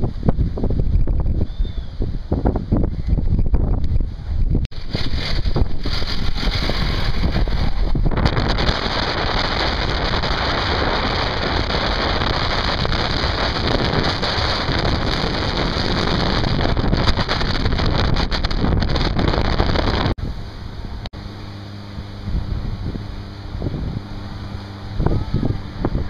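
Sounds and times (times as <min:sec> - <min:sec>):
wind buffeting microphone: 0:00.0 - 0:26.0
low steady hum: 0:20.2 - 0:26.0.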